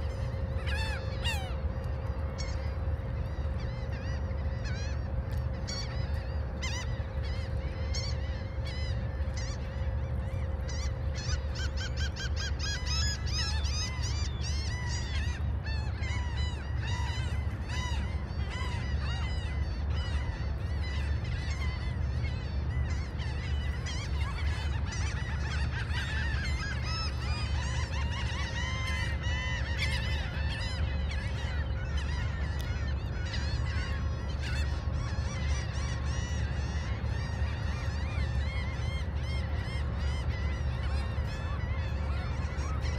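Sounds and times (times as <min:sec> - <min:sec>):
gulls calling: 0:00.0 - 0:42.9.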